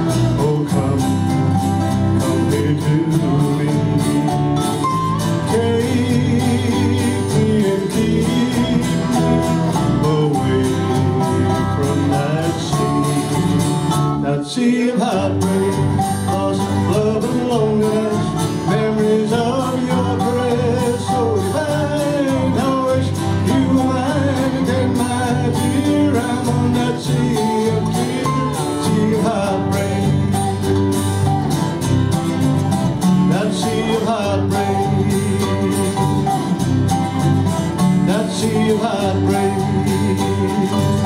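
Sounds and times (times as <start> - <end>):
electric guitar lead: 0.0 - 14.4, 15.0 - 41.0
bass guitar: 0.0 - 41.0
keyboard: 0.0 - 41.0
strummed acoustic guitar: 0.0 - 41.0.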